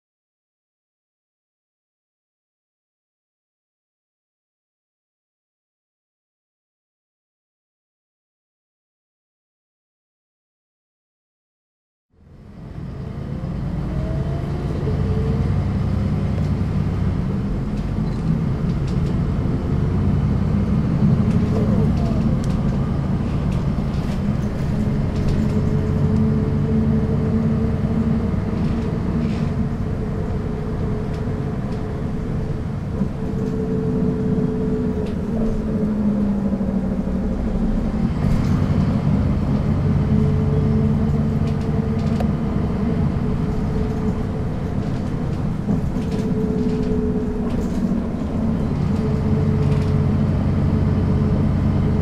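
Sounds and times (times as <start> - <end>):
bus engine running: 12.2 - 52.0.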